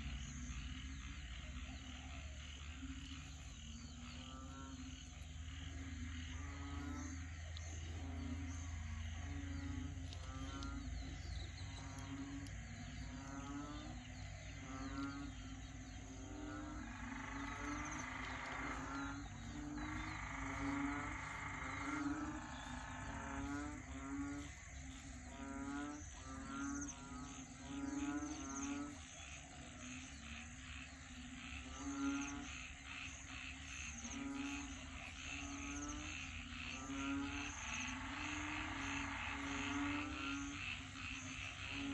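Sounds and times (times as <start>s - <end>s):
frogs calling: 0.0s - 41.9s.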